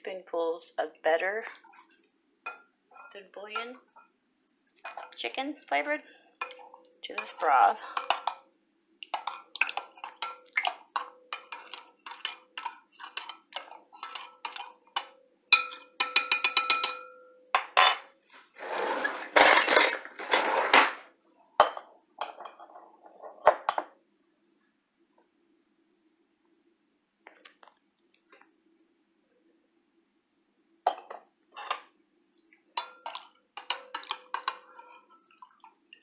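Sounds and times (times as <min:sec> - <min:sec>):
spoon scraping glass bowl: 0:09.2 - 0:14.8
metal spoon clinking against glass: 0:15.5 - 0:18.0.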